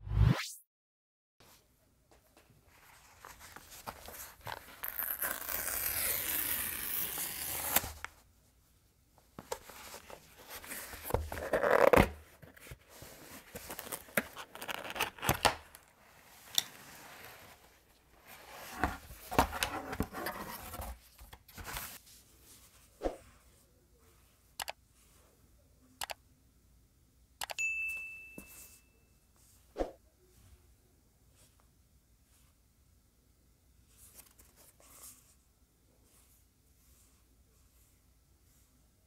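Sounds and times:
cardboard tearing: 0:04.7 - 0:08.0
cardboard scraping and rustling: 0:16.3 - 0:22.0.

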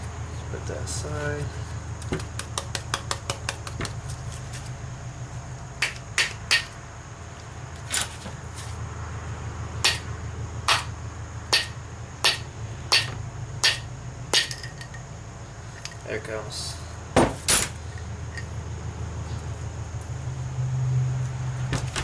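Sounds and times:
hammer striking metal pin: 0:11.5 - 0:13.8.

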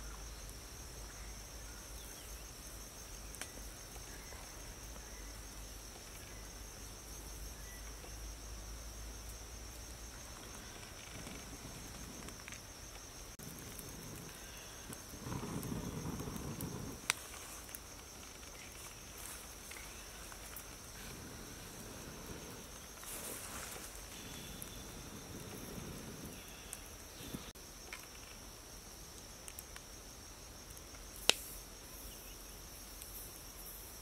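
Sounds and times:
insects droning: 0:00.0 - 0:34.0
breath puffs blown on embers: 0:10.1 - 0:27.6.

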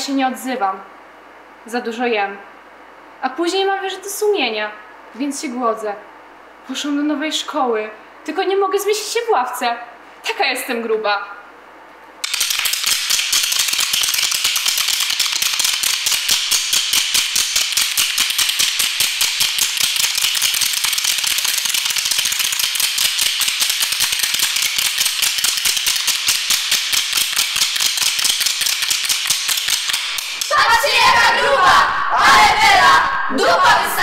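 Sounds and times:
wooden spoons clacking: 0:12.2 - 0:31.0.

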